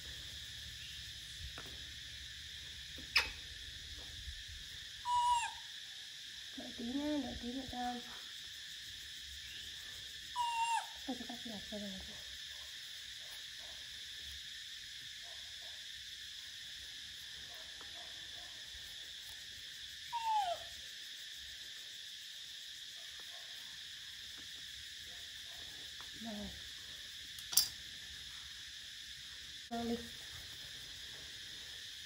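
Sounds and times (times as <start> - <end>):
steady high hiss: 0.0 - 10.3
monkey coo call: 3.0 - 3.4, 5.0 - 5.7, 10.4 - 11.3, 20.1 - 20.8.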